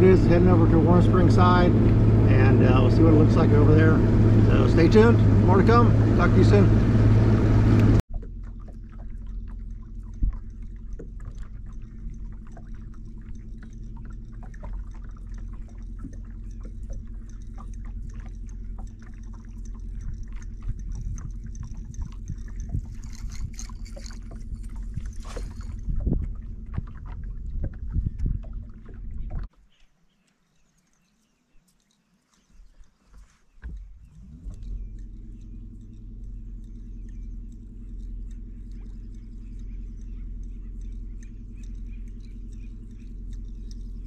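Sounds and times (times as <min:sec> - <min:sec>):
electric trolling motor humming: 0:00.0 - 0:29.5, 0:33.6 - 0:44.0
water splashing against hull: 0:00.0 - 0:29.8, 0:32.4 - 0:44.0
outboard engine: 0:00.0 - 0:31.2, 0:32.0 - 0:44.0
wind noise: 0:19.9 - 0:29.5.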